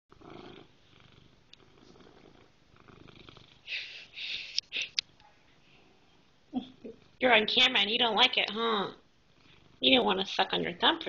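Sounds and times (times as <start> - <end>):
cat purring: 0.1 - 3.7, 9.3 - 10.2.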